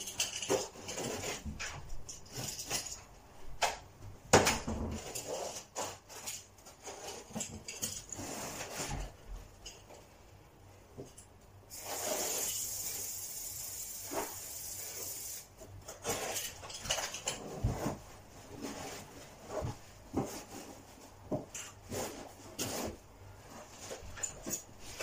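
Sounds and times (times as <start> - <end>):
aerosol spray can hissing: 11.7 - 15.5.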